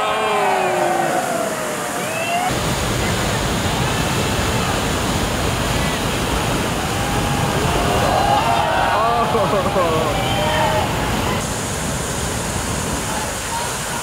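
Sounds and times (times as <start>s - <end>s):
faint shouting voices: 0.0s - 2.5s, 6.8s - 11.4s
whitewater rushing: 0.0s - 14.0s.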